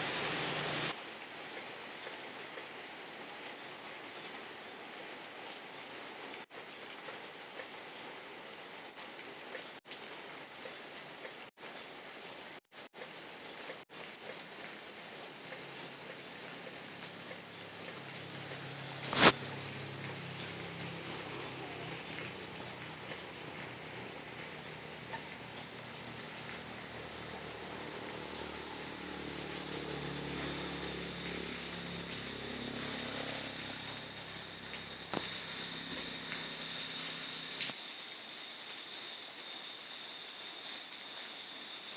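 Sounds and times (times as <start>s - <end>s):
rain on foliage: 0.0s - 41.9s
passing engine hum: 17.9s - 25.5s, 26.1s - 37.6s.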